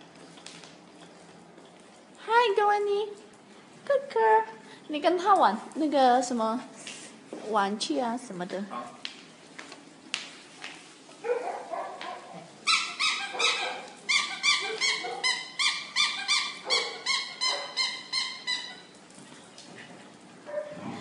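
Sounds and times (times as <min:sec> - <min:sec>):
squeaky dog toy squeaking: 0:12.7 - 0:18.9.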